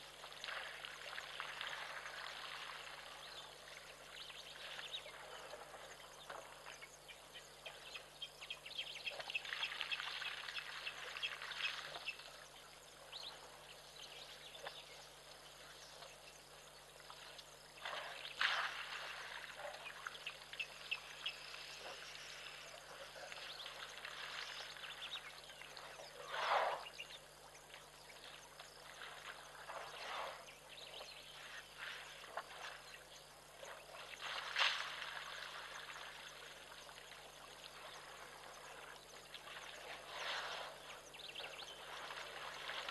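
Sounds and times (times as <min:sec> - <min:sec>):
elephants splashing water: 0:00.1 - 0:03.8, 0:17.8 - 0:20.6, 0:27.7 - 0:32.9, 0:33.6 - 0:42.9.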